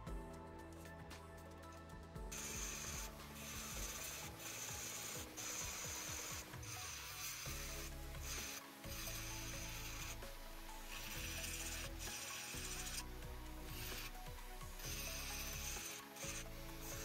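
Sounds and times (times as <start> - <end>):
rotary tool grinding metal: 2.3 - 17.0.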